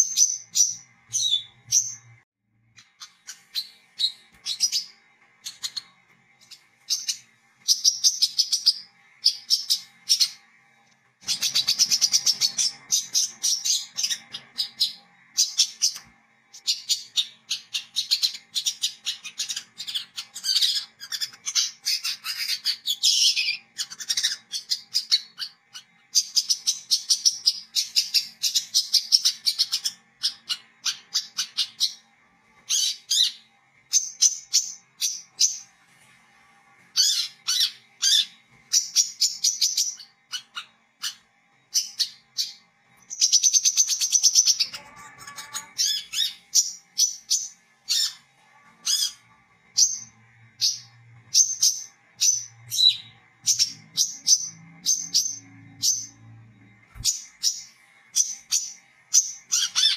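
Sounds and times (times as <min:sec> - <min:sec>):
bird twittering chatter: 0:11.2 - 0:32.1.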